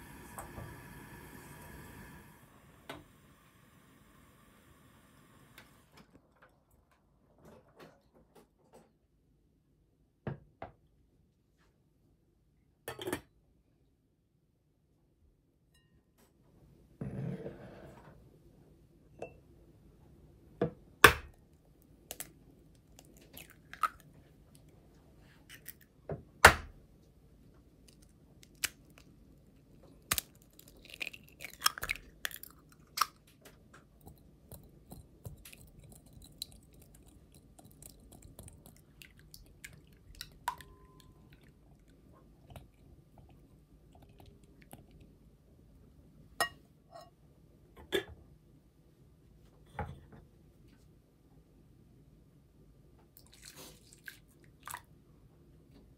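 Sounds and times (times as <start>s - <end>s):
eggs cracked on bowl: 30.0s - 33.2s.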